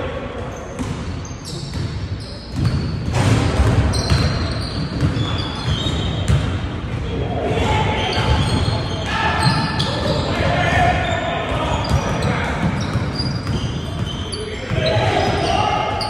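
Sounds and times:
basketball bouncing on hardwood floor: 2.5 - 6.5.

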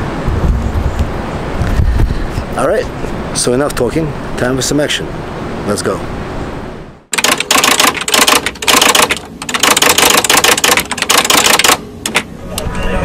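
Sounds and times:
outdoor background noise: 0.0 - 13.0
rapid crackling rattle: 7.1 - 12.3.

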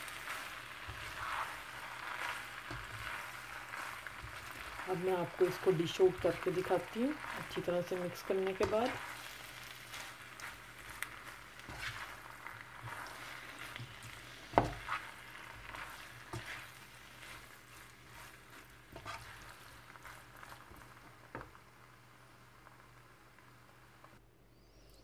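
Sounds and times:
spatula scraping a pan: 0.0 - 21.0
frying sizzle: 0.0 - 24.2
spatula knocking on pan: 13.8 - 15.0.

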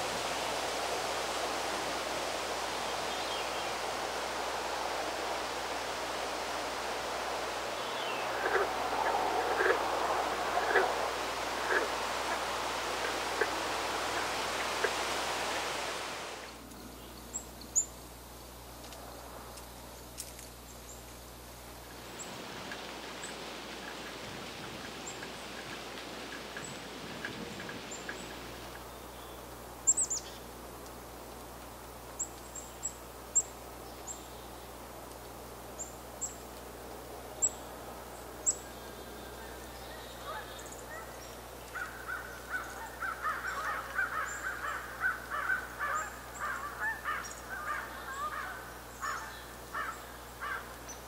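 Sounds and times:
broad rush of noise: 0.0 - 16.8
songbirds chirping: 0.5 - 51.0.

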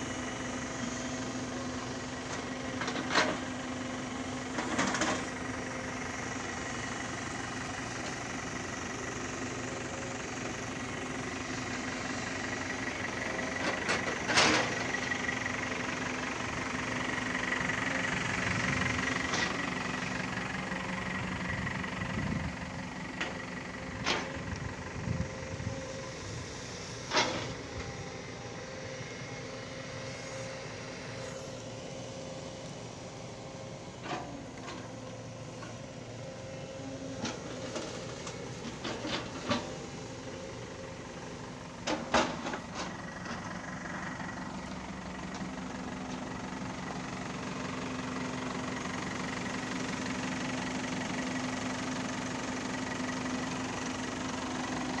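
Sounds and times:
diesel engines running: 0.0 - 55.0.

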